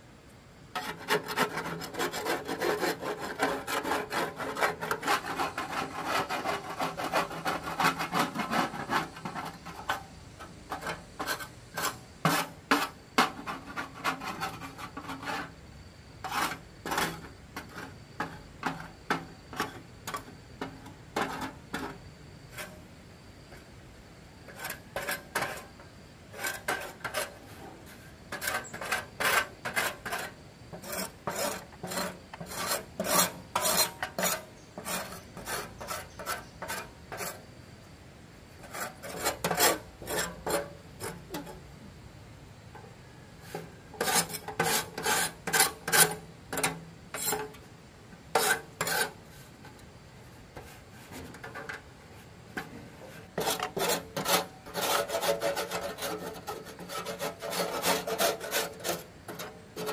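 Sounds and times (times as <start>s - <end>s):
rapid rasping filing strokes: 0.8s - 9.3s, 28.3s - 37.4s, 44.0s - 46.2s, 53.4s - 59.9s.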